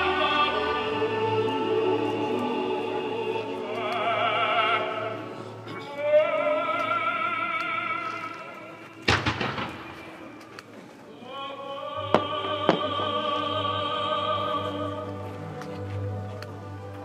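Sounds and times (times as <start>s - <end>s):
opera singing: 0.0s - 9.1s, 11.1s - 17.0s
fireworks bursting: 9.0s - 10.7s, 12.0s - 13.2s.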